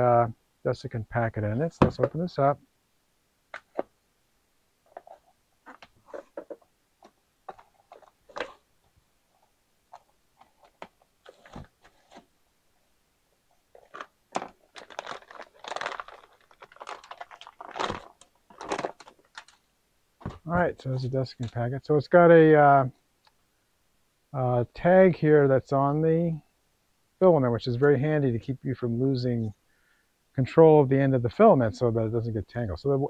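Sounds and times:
plastic bag crinkling: 13.7s - 19.6s.

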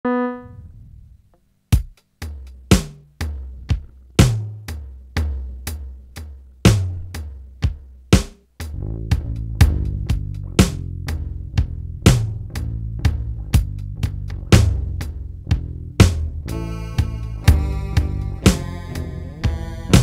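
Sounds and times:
electronic keyboard note: 0.0s - 0.7s, 16.5s - 20.0s
drum machine beat with bass: 1.7s - 20.0s.

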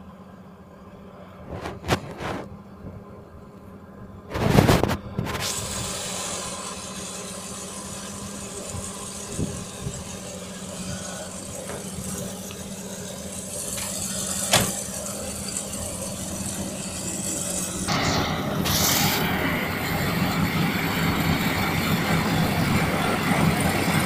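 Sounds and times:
combine harvester engine running: 0.0s - 24.0s
loud rush of noise: 8.7s - 24.0s.

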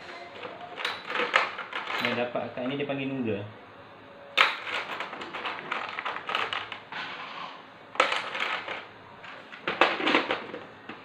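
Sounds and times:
nozzles clattering in plastic box: 0.4s - 2.3s, 4.4s - 6.8s, 8.0s - 11.0s.

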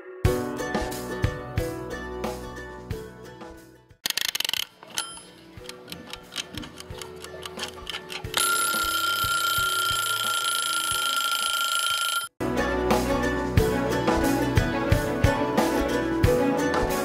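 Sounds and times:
music: 0.0s - 4.0s, 5.0s - 10.4s, 12.4s - 17.0s
kitchen timer ticking: 4.1s - 12.3s
timer bell ringing: 8.4s - 12.3s.

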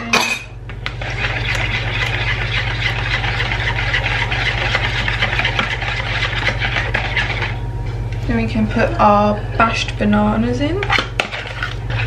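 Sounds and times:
low steady hum: 0.0s - 12.0s
whisk rattling against bowl: 0.7s - 7.6s, 10.8s - 12.0s.

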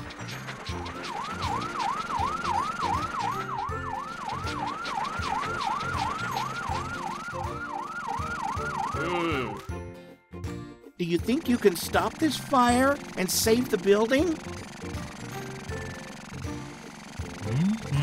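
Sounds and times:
background music with steady beat: 0.0s - 18.0s
fire truck siren yelping: 0.7s - 9.7s.

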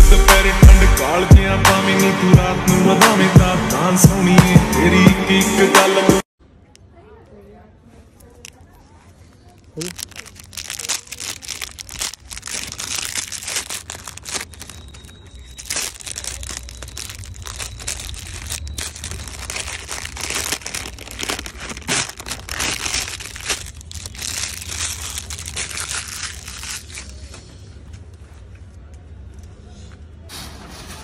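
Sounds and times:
plastic wrapper crinkling and tearing: 9.3s - 27.4s.

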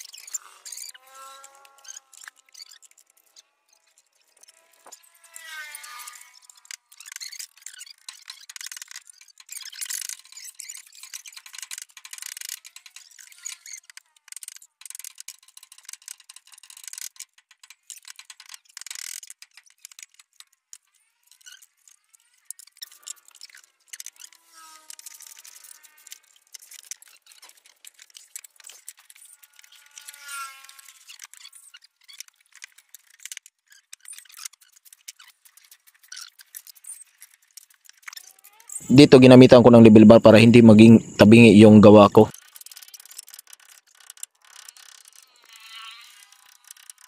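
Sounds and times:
faint wavering squeaks: 0.0s - 11.6s, 12.6s - 14.2s, 20.9s - 38.9s, 44.5s - 47.0s.

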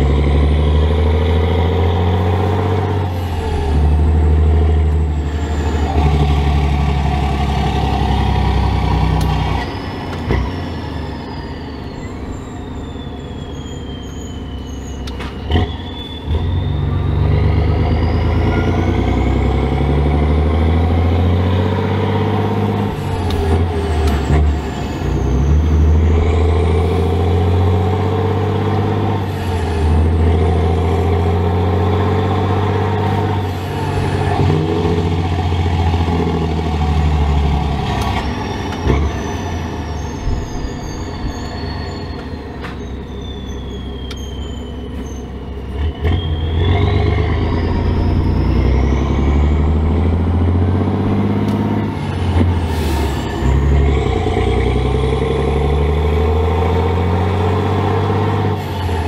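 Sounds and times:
truck diesel engine droning: 0.0s - 59.0s
high whistle: 10.5s - 19.4s, 38.0s - 49.9s.

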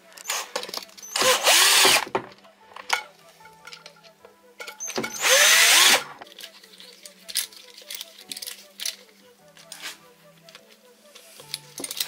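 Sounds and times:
cordless drill driving screw: 0.2s - 2.1s, 4.9s - 6.2s.

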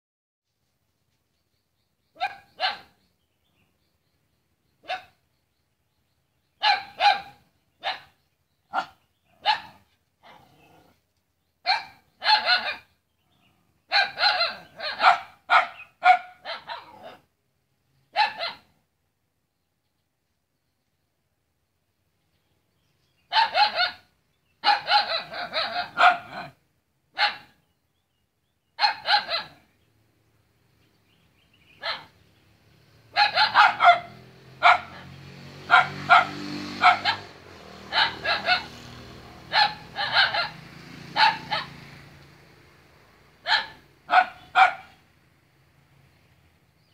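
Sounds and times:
dog barking: 2.2s - 3.0s, 4.8s - 5.2s, 6.6s - 10.6s, 11.6s - 12.9s, 13.9s - 17.3s, 18.1s - 18.7s, 23.3s - 27.6s, 28.8s - 29.7s, 31.8s - 32.2s, 33.1s - 38.8s, 39.5s - 41.8s, 43.4s - 45.0s.

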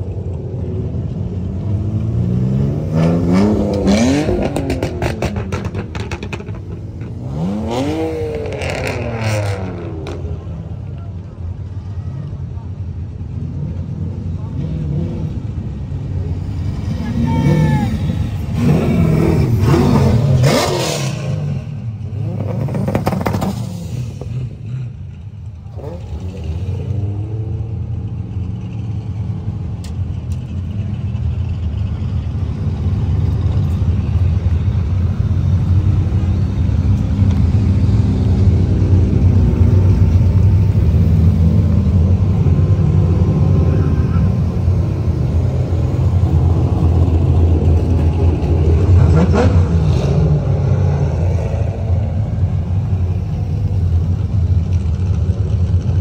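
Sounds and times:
car engines rumbling: 0.0s - 56.0s
car engine revving up: 1.8s - 10.5s, 16.7s - 25.0s, 36.0s - 54.8s.

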